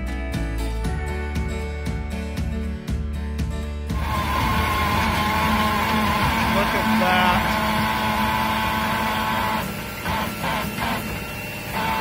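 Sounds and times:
hydraulic auger engine whining: 3.9 - 12.0
short pulses: 4.0 - 12.0.

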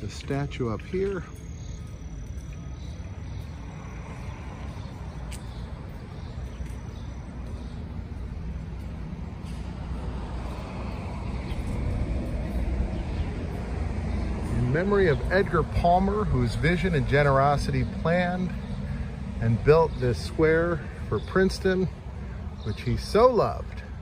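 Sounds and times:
vehicle engine rumble: 0.0 - 24.0.

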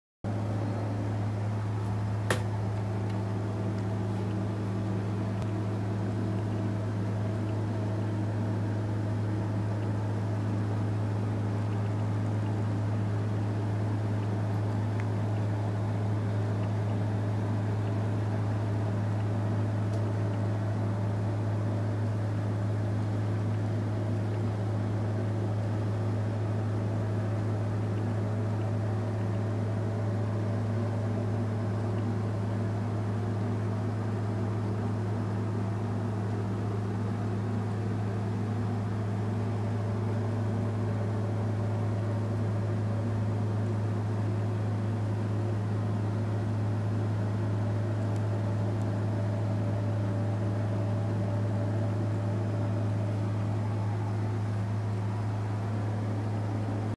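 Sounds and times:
steady low hum: 0.2 - 56.9.

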